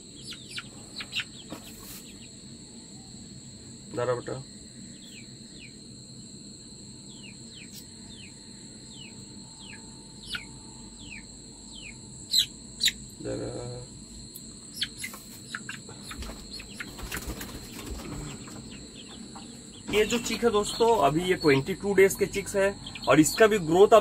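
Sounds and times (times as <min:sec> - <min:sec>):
high insect drone: 0:00.0 - 0:24.0
chick peeping: 0:00.2 - 0:02.3, 0:08.9 - 0:13.0, 0:14.7 - 0:24.0.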